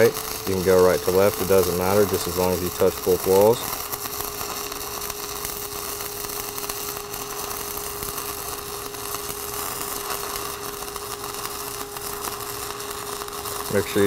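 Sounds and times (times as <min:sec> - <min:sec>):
steady hum: 0:00.0 - 0:14.0
welding arc crackling: 0:00.0 - 0:14.0.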